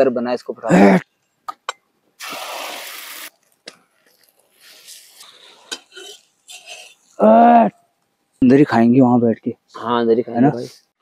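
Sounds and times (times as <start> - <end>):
liquid hissing in cooking pan: 2.2 - 3.4.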